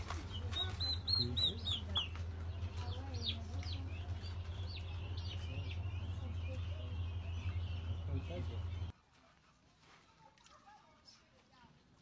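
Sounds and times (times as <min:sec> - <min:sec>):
keets peeping: 0:00.0 - 0:08.9
low hum: 0:00.1 - 0:08.9.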